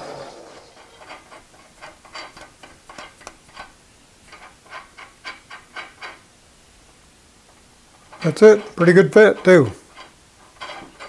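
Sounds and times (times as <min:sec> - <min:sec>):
nut clicking on metal threads: 0:01.0 - 0:06.2.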